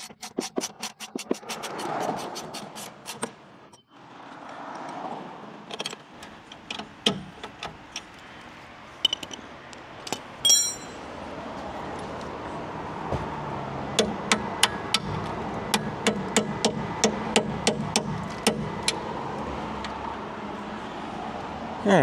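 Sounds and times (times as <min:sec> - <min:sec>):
wrench clinking and scraping on metal: 0:10.1 - 0:11.1
ringing metal clink: 0:10.4 - 0:11.1.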